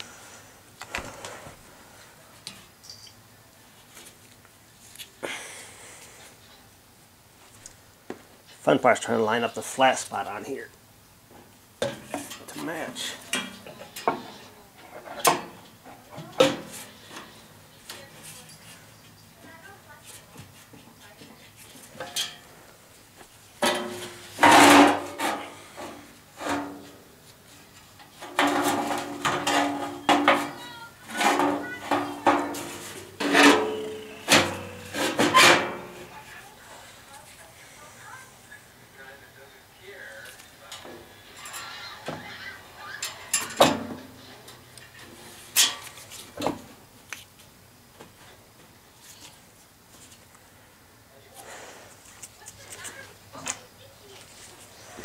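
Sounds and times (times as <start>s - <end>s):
metal scraping and clanking: 23.6s - 27.1s, 27.8s - 36.2s, 43.0s - 46.4s.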